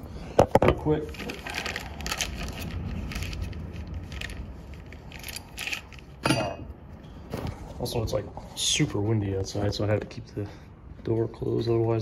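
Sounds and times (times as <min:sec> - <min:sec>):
handling noise rustling and crackling: 0:00.5 - 0:08.0.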